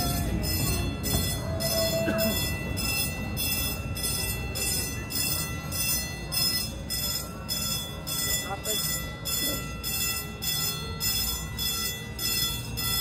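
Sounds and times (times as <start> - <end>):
train wheels rumbling on rails: 0.0 - 7.8
level-crossing bell ringing: 0.0 - 13.0.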